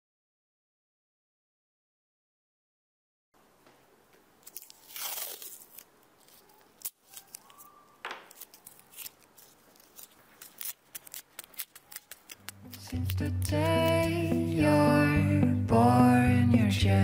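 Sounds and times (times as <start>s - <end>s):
tape tearing off roll: 4.4s - 14.2s.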